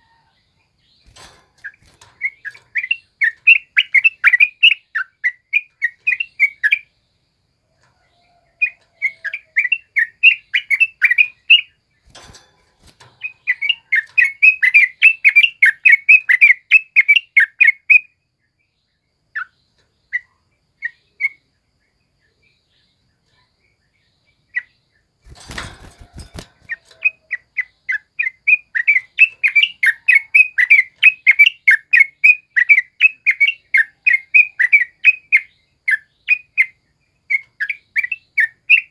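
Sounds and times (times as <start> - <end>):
bird singing rapid chattering notes: 0.6 - 38.9.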